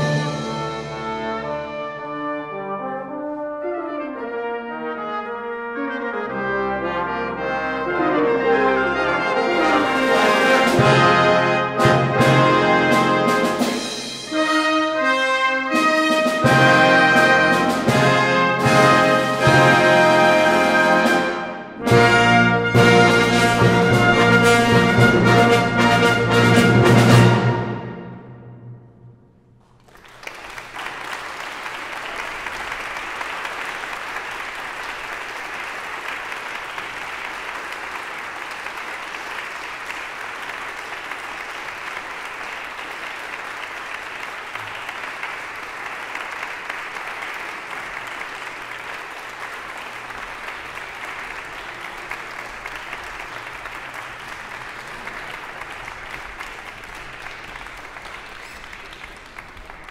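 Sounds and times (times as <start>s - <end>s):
audience applause: 29.6s - 59.9s.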